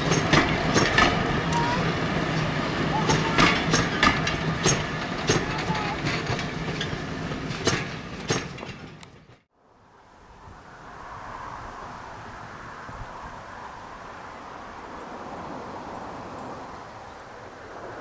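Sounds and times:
train rumble: 0.0 - 9.5
train wheels clicking over rail joints: 0.0 - 9.5.

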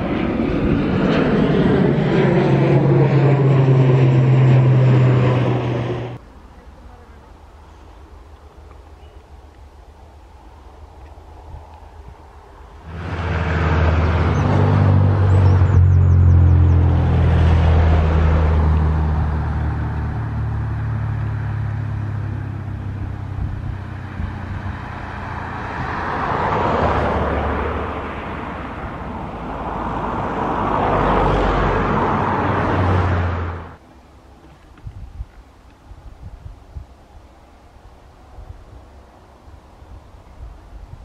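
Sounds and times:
jet engine roar: 0.0 - 6.2, 12.0 - 33.8.

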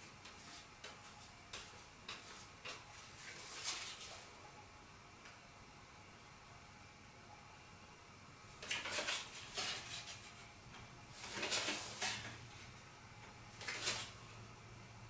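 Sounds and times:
playing cards sliding and flicking: 0.2 - 4.2, 8.6 - 10.5, 11.2 - 12.4, 13.6 - 14.2.

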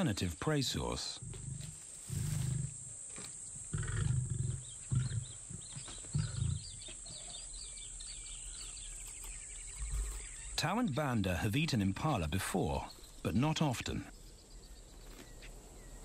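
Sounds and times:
lionesses growling: 1.1 - 3.0, 3.6 - 8.8.

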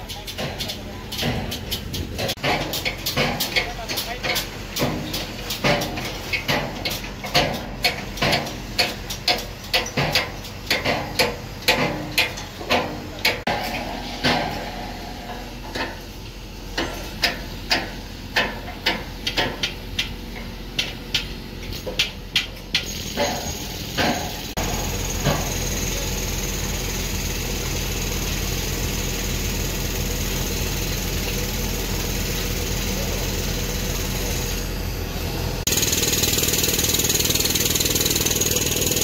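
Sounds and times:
hammering on steel scaffold tubes: 0.0 - 14.8, 16.7 - 25.5.

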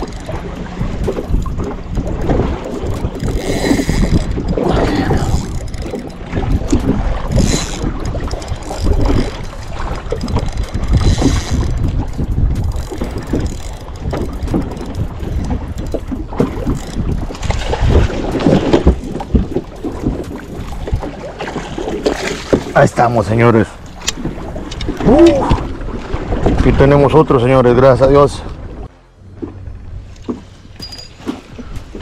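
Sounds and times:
fishing reel cranking: 0.0 - 0.4, 1.2 - 17.5
water slapping against boat: 0.0 - 32.0
wind buffeting microphone: 0.0 - 32.0.

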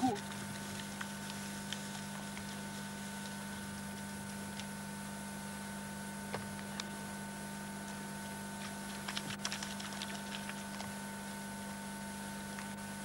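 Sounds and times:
steady electrical hum: 0.0 - 13.0
light clicks and crackles: 0.2 - 2.6.

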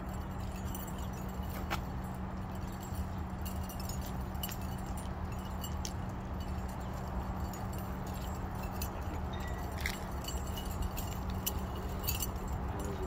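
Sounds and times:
light metallic clinks: 0.0 - 13.0
low outdoor rumble: 0.0 - 13.0.

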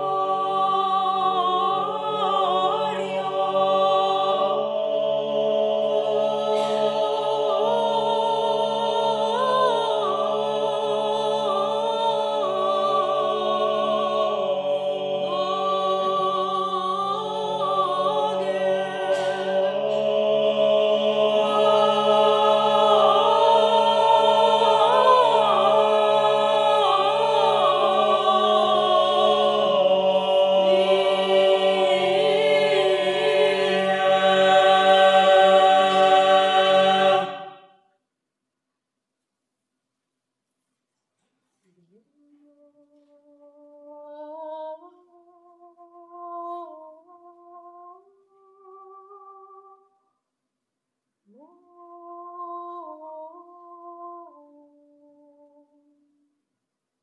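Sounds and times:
mixed choir singing chant: 0.0 - 37.7.

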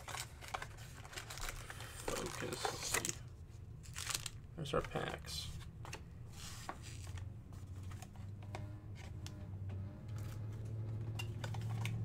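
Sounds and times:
card packs clicking and rustling: 0.0 - 6.0, 10.2 - 12.0
low hum: 7.1 - 12.0.

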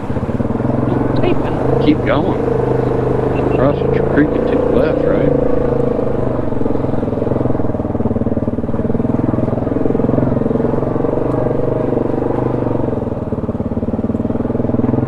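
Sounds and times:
off-road vehicle engine running: 0.0 - 15.0.

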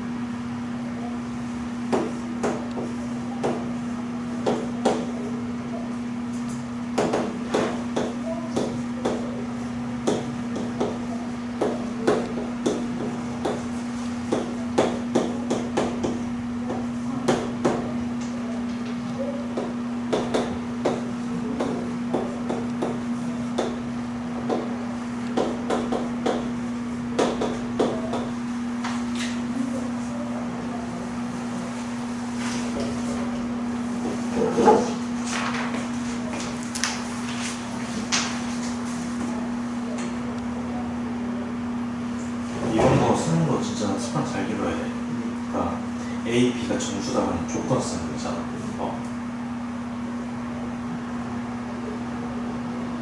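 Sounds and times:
steady low hum: 0.0 - 53.0
chalk tapping on blackboard: 7.0 - 9.3, 10.0 - 11.0, 11.6 - 17.8, 19.6 - 23.8, 25.3 - 26.5, 27.2 - 28.3.

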